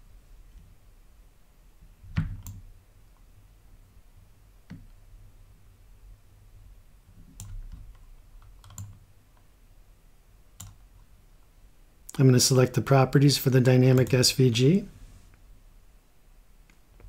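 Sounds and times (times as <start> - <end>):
low room hum: 0.0 - 17.0
computer mouse clicking: 2.2 - 2.7, 7.3 - 9.5, 10.6 - 10.8.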